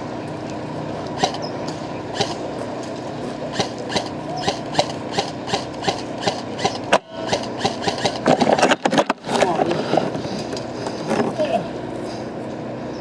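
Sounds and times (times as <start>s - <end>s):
steady hum: 0.0s - 13.0s
airsoft guns firing pops: 3.5s - 8.6s.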